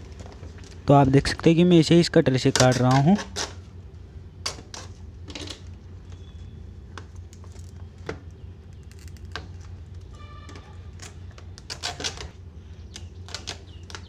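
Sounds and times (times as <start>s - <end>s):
plastic packaging clicks and crackles: 6.9s - 14.0s.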